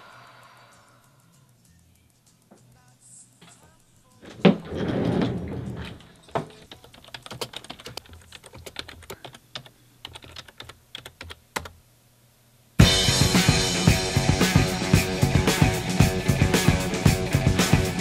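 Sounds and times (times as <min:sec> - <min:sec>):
fast typing on keyboard: 0:06.6 - 0:11.8.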